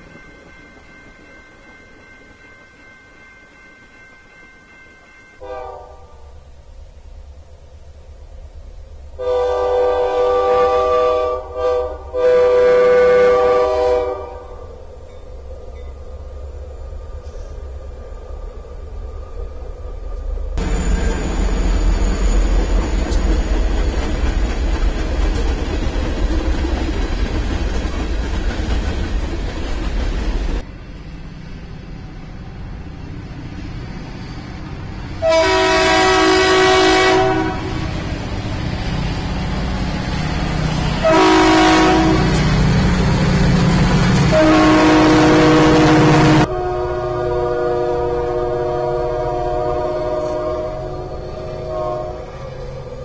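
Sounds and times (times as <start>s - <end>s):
freight train rumbling past: 0.0s - 53.0s
locomotive air horn blasts: 5.4s - 6.3s, 9.2s - 14.6s, 35.2s - 38.0s, 41.0s - 42.6s, 44.2s - 52.4s.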